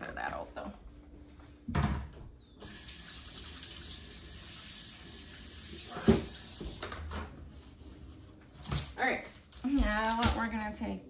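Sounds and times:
tap water running: 0:02.6 - 0:07.3.

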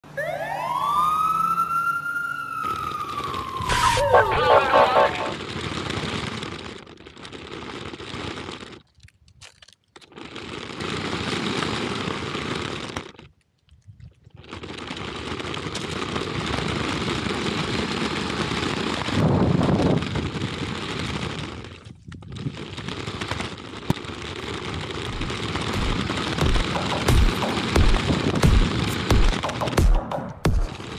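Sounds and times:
toy car rattling on asphalt: 0:05.4 - 0:29.4.

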